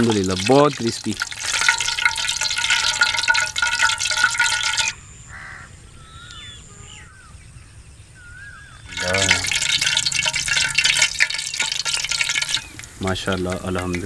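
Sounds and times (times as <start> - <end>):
food sizzling in hot oil: 0.0 - 5.0, 8.9 - 14.0
bird calls: 4.2 - 14.0.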